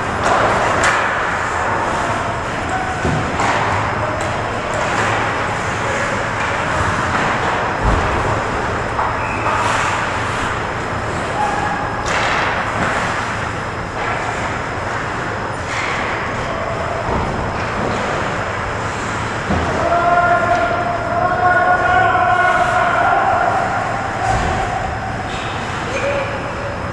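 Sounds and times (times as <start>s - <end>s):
arena hum and hiss: 0.0s - 26.9s
sticks and puck clattering: 0.2s - 8.3s, 8.9s - 13.4s, 14.0s - 15.1s.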